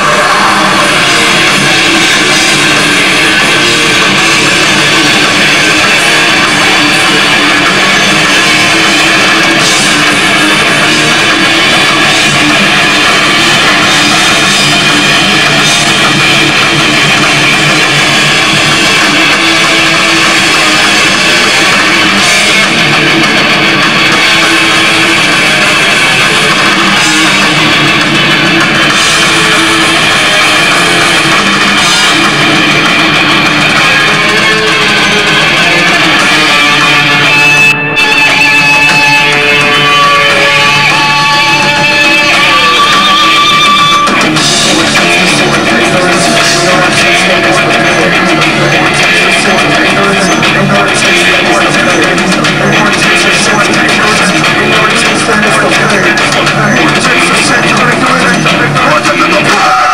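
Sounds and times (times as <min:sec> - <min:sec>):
heavy metal band playing live: 0:00.0 - 0:59.9.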